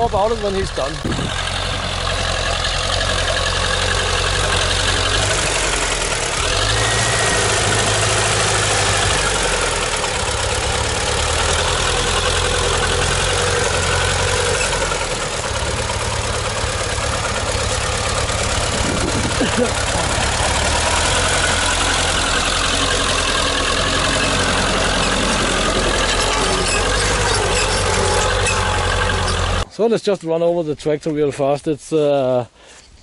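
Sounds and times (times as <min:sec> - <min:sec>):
tractor diesel engine under load: 0:00.0 - 0:29.7
plough pulled through soil: 0:17.7 - 0:29.6.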